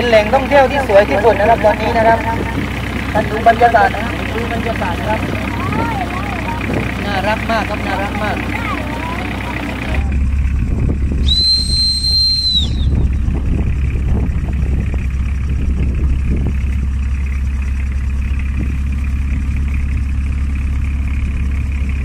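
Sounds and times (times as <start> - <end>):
boat engine running: 0.0 - 22.0
high whistle: 11.2 - 13.2.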